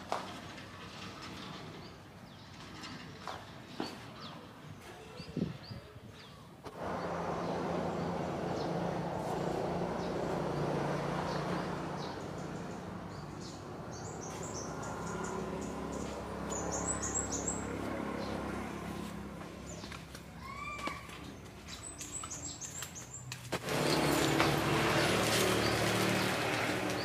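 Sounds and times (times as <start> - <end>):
small birds chirping: 1.6 - 27.0
bees buzzing: 23.6 - 27.0.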